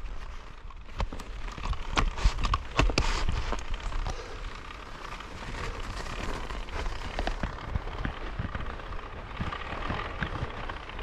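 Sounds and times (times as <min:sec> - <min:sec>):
bike tyres crunching snow: 0:00.0 - 0:11.0
scattered clicks and knocks: 0:06.9 - 0:11.0.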